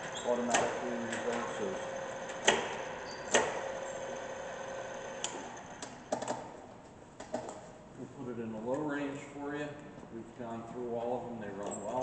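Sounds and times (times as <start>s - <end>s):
drill press motor and gear hum: 0.0s - 5.9s.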